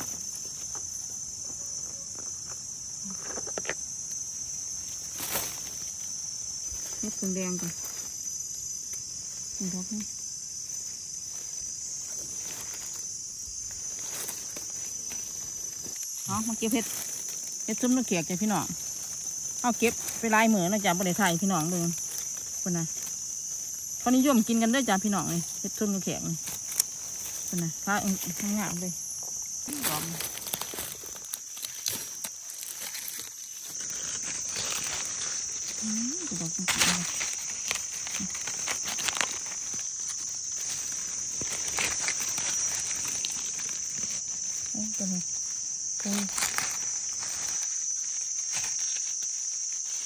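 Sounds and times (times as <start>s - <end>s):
high-pitched insect chorus: 0.0s - 50.0s
rustling of dry leaf litter: 0.0s - 50.0s.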